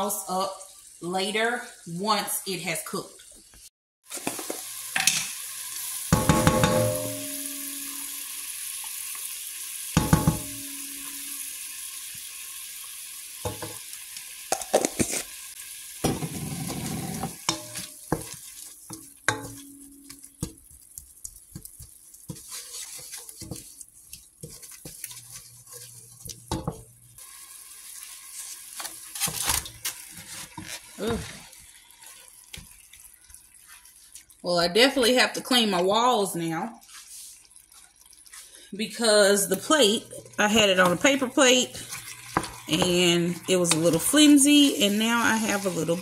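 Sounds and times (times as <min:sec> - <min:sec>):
vegetables sizzling in butter: 0:00.0 - 0:46.0
wooden spoon knocking pot: 0:06.1 - 0:07.5, 0:10.0 - 0:10.8, 0:19.0 - 0:21.9.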